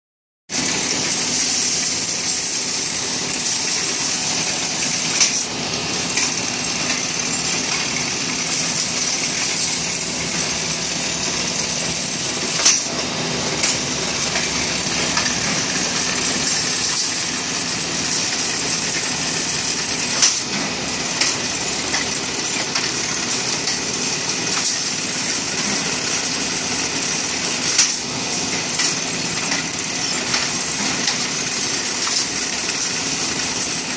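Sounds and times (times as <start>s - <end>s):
sharp machine clack: 0.5s - 33.9s
machine whirring and hissing: 0.6s - 33.9s.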